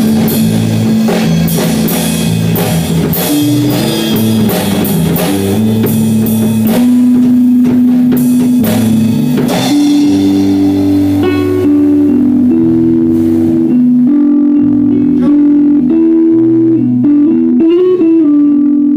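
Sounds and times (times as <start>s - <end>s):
drum kit: 0.0s - 18.3s
electric bass: 0.0s - 18.9s
electric guitar: 0.0s - 18.9s.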